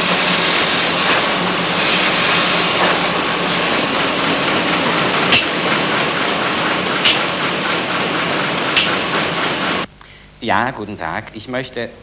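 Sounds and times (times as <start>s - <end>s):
factory machinery din: 0.0s - 9.9s
sharp metallic clack: 5.2s - 5.7s, 7.0s - 7.4s, 8.7s - 9.2s.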